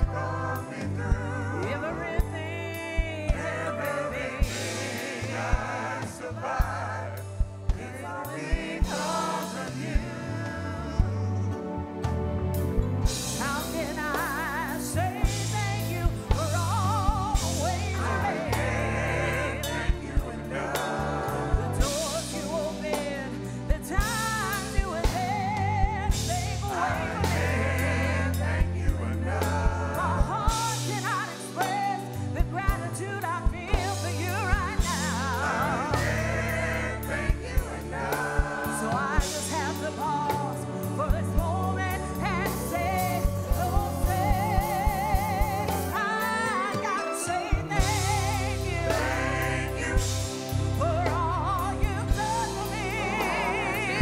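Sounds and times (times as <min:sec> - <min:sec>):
steady drum beat: 0:00.0 - 0:11.2, 0:12.6 - 0:46.7, 0:47.5 - 0:54.0
backing singers: 0:00.0 - 0:11.6, 0:13.1 - 0:54.0
bass: 0:00.0 - 0:54.0
woman singing into a microphone: 0:29.6 - 0:36.0, 0:38.3 - 0:50.2, 0:50.8 - 0:54.0.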